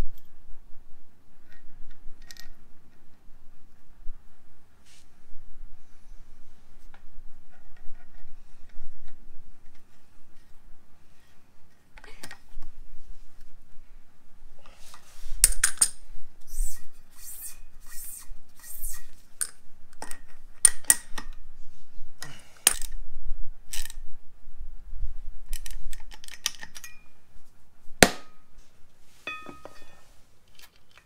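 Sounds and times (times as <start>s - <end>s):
wrench clinking on metal: 26.6s - 27.1s, 29.3s - 30.0s.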